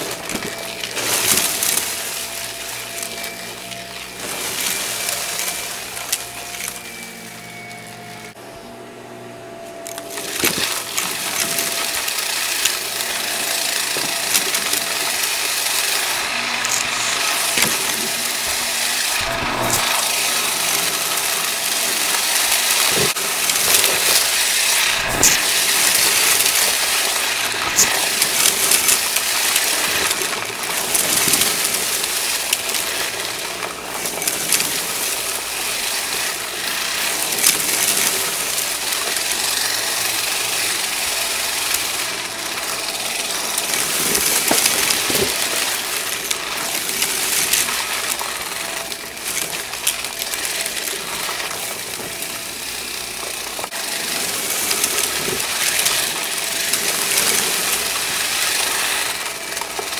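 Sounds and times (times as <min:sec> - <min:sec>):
confetti rattling into vacuum: 0:00.0 - 0:07.0, 0:10.0 - 0:59.9
vacuum cleaner running: 0:00.0 - 0:59.9.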